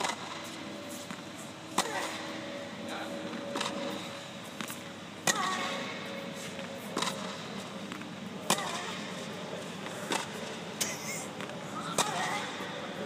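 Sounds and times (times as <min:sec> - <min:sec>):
faint steady hum: 0:00.0 - 0:13.0
racket hitting tennis ball: 0:01.0 - 0:02.3, 0:03.5 - 0:06.0, 0:06.8 - 0:10.5, 0:11.4 - 0:12.6.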